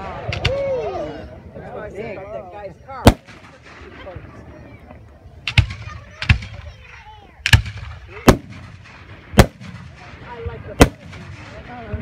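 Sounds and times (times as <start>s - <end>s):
fireworks bangs: 3.0s - 12.0s.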